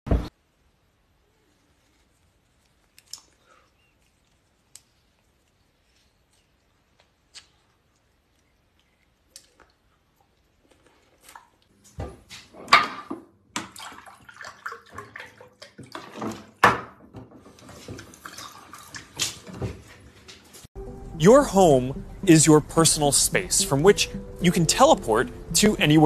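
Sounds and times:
faucet water splashing into sink: 13.6s - 16.6s.

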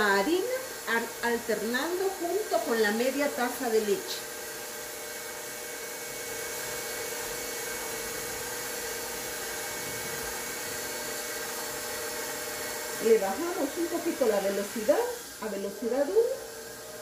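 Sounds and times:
stand mixer motor humming: 0.0s - 17.0s.

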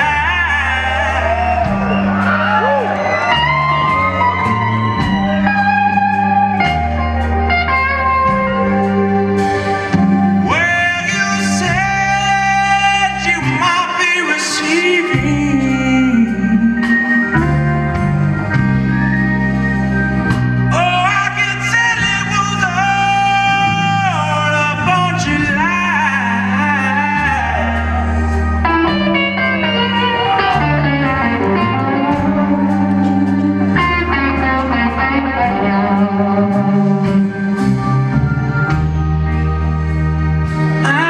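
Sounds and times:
man singing: 0.0s - 1.8s, 10.4s - 17.9s, 20.7s - 32.8s, 40.8s - 41.0s
bass guitar: 0.0s - 41.0s
drums: 0.0s - 41.0s
electric guitar: 0.0s - 41.0s.

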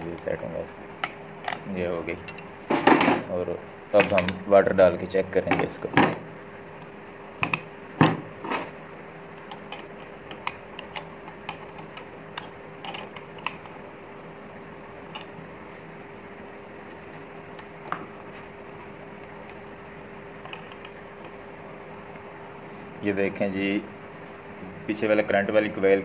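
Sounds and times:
faint steady hum: 0.0s - 26.0s
metal parts clicking and knocking: 9.5s - 13.7s.

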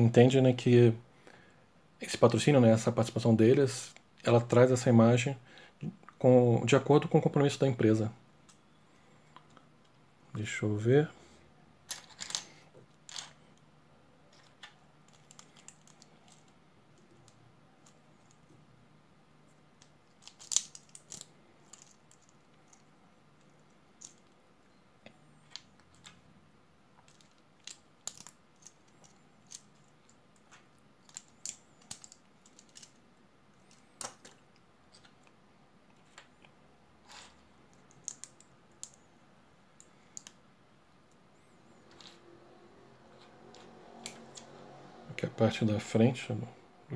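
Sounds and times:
plastic bricks clicking: 14.3s - 18.5s, 19.8s - 24.4s, 27.0s - 33.0s, 33.6s - 35.3s, 37.1s - 39.0s, 39.8s - 40.4s.

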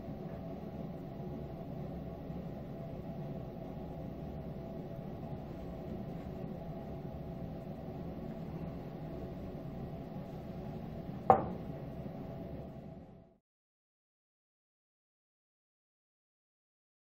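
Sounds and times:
steady low hum: 0.0s - 13.4s
wooden knife knocking on workbench: 11.3s - 11.6s.

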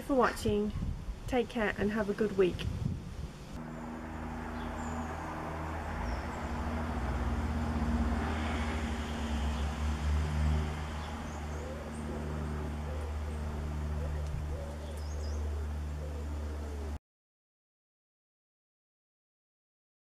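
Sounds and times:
low mechanical hum: 2.6s - 17.0s
bird chirps: 10.8s - 16.3s.

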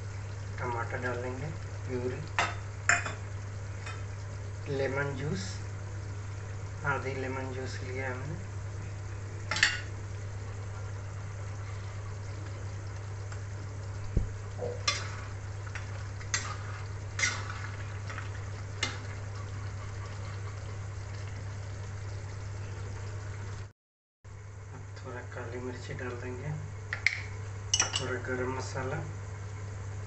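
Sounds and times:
faint sizzle: 0.0s - 23.7s, 24.3s - 30.0s
metal spatula scraping a pan: 16.3s - 18.2s.

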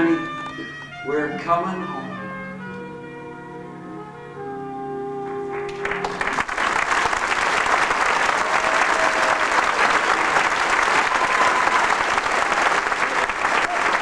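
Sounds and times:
held musical chord: 0.0s - 6.8s
audience applauding: 5.3s - 14.0s.

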